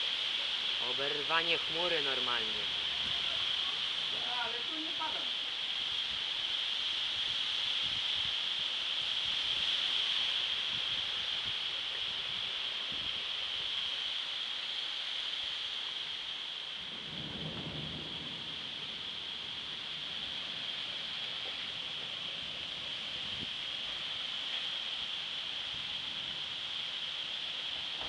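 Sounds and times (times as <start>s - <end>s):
rain hissing: 0.0s - 28.0s
low thunder rumble: 16.8s - 23.6s.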